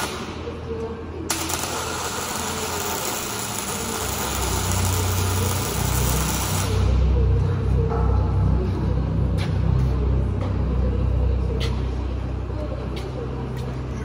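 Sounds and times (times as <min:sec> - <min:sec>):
welding arc crackling and hissing: 0:00.0 - 0:00.4, 0:01.3 - 0:07.1
low machine rumble: 0:00.0 - 0:14.0.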